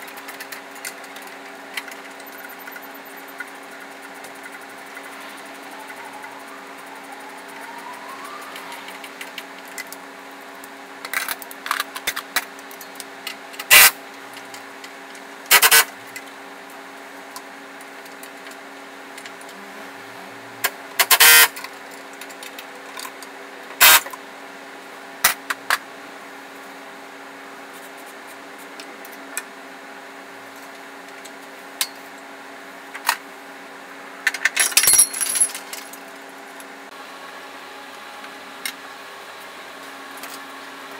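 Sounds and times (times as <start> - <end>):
steady hum: 2.2 - 11.3, 18.0 - 21.7.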